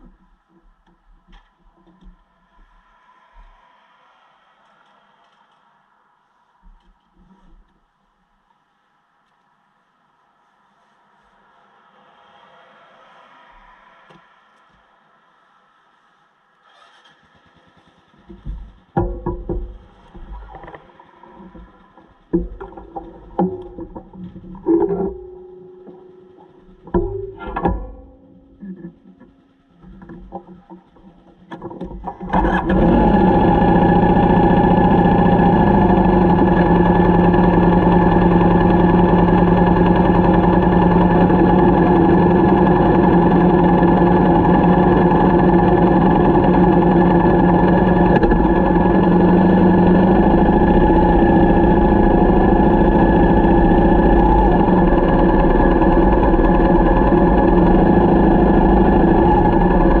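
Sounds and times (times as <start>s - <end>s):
motorcycle engine starting and running: 16.6s - 60.0s.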